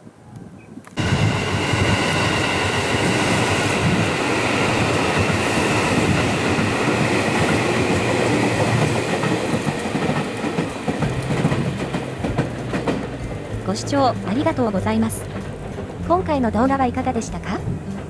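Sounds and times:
electric train passing: 0:01.0 - 0:18.0
train wheels rattling on rails: 0:01.0 - 0:18.0.

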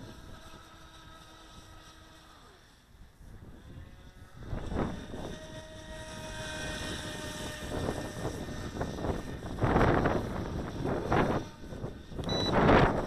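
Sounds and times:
rc boat motor whine: 0:00.0 - 0:13.0
wind gusts on microphone: 0:03.0 - 0:13.0.

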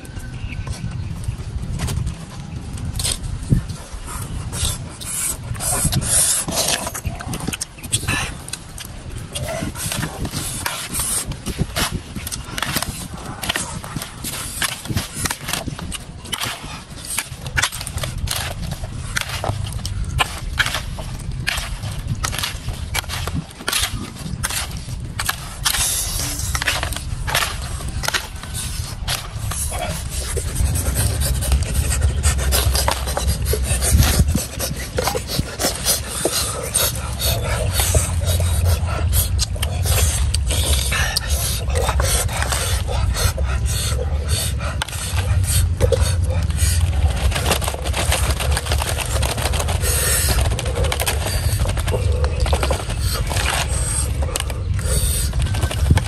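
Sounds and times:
low rumble: 0:11.3 - 0:56.0.

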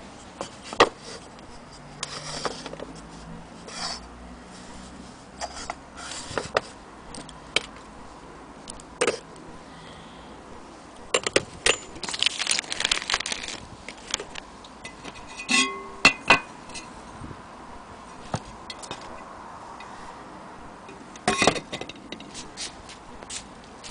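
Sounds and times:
metal and glass clinking: 0:14.9 - 0:16.9.

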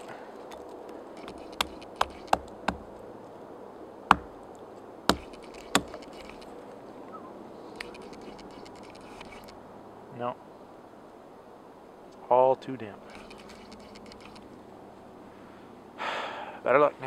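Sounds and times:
hatchet chopping into fungus: 0:01.2 - 0:02.9, 0:04.1 - 0:04.4, 0:05.1 - 0:06.4.

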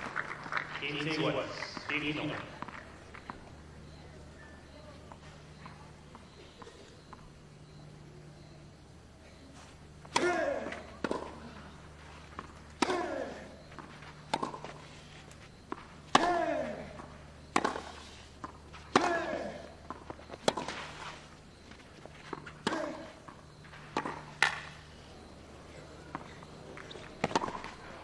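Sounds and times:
racket striking tennis ball: 0:10.1 - 0:11.4, 0:12.8 - 0:14.8, 0:15.7 - 0:20.9, 0:22.2 - 0:23.3, 0:23.9 - 0:24.8, 0:27.2 - 0:27.7.

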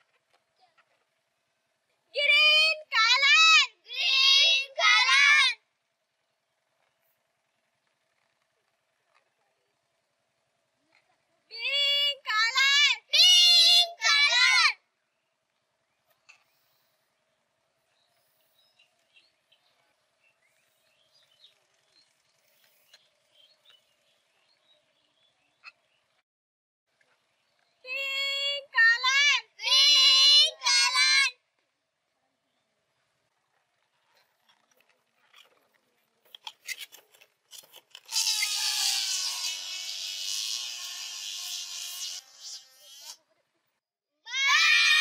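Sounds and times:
rubber balloons squeaking: 0:36.3 - 0:43.2
balloons buzzing and squealing: 0:36.4 - 0:43.2.

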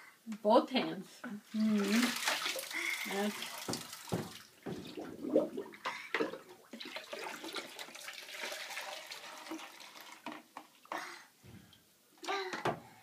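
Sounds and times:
bathwater splashing: 0:01.5 - 0:10.4
water trickling: 0:01.5 - 0:10.9.

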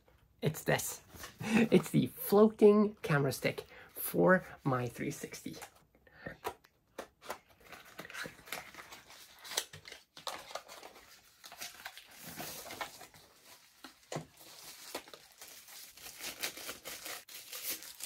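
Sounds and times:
cardboard and plastic crinkling: 0:07.3 - 0:18.0.

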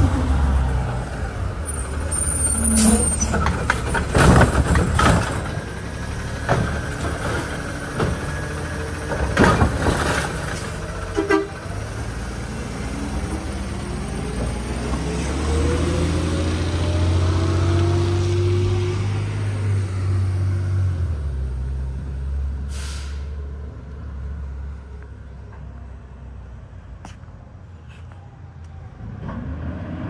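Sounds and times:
diesel truck engine running: 0:00.0 - 0:17.3
air brake hiss: 0:22.7 - 0:23.4.

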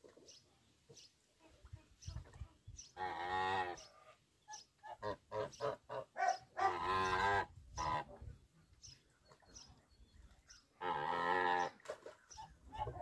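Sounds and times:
goose honking: 0:04.8 - 0:08.2, 0:10.8 - 0:11.8.

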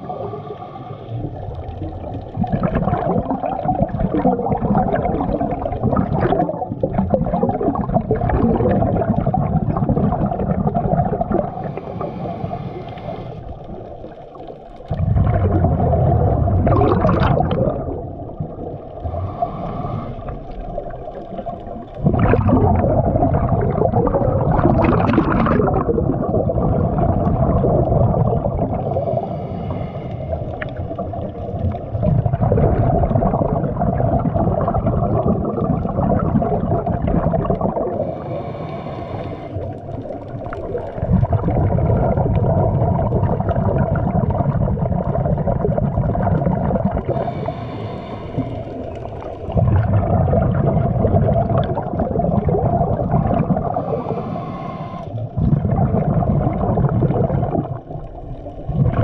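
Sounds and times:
exhaled bubbles underwater: 0:00.0 - 0:59.0
hissing regulator inhalations: 0:11.6 - 0:13.7, 0:19.0 - 0:20.6, 0:28.9 - 0:30.7, 0:38.0 - 0:40.2, 0:47.0 - 0:49.3, 0:53.7 - 0:55.3.

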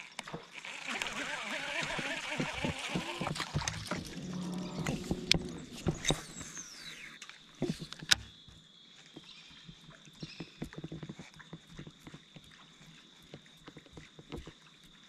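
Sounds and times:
fishing reel gear whir: 0:00.0 - 0:08.2.

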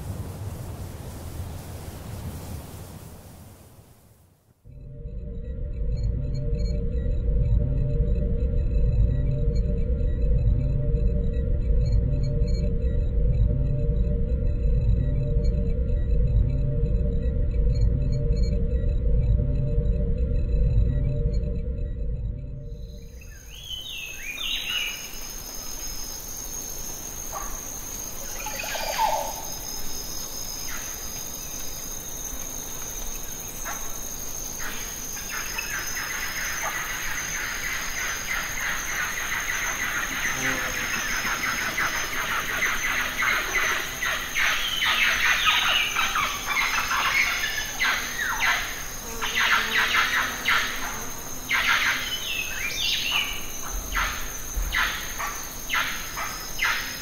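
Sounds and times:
birds chirping: 0:23.0 - 0:31.7, 0:33.6 - 0:57.0.

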